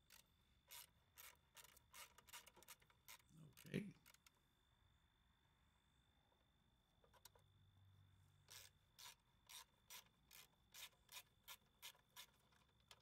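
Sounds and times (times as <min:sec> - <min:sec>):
ratchet wrench rasping: 0:00.0 - 0:04.2, 0:08.5 - 0:13.0.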